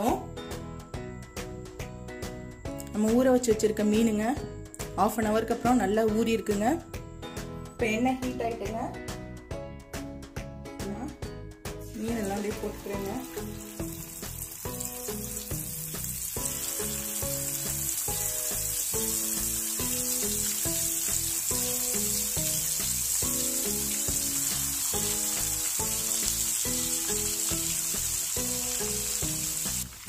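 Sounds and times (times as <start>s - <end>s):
background music: 0.0s - 30.0s
fish sizzling in hot oil: 12.0s - 30.0s.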